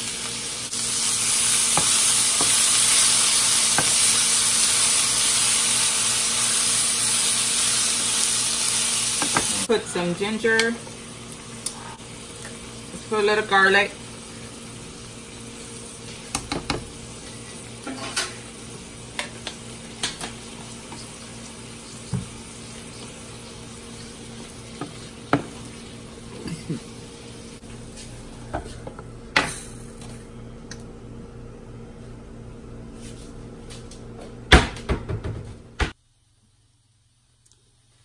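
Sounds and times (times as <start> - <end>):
vegetables sizzling in a frying pan: 0.0 - 27.8.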